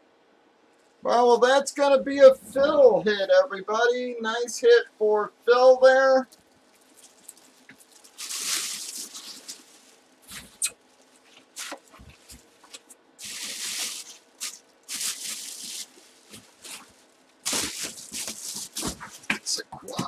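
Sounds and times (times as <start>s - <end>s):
plastic bag crinkling: 6.2s - 20.0s.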